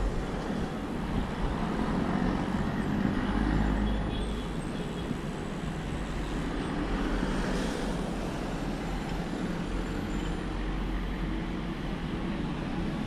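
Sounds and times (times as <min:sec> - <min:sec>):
road traffic hum: 0:00.0 - 0:13.0.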